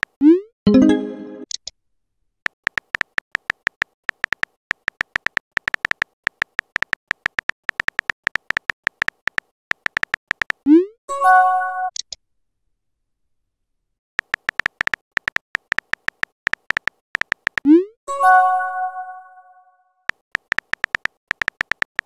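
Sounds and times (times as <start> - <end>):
synthetic keyboard clicks: 2.4 - 10.8, 14.2 - 17.9, 20.1 - 22.0.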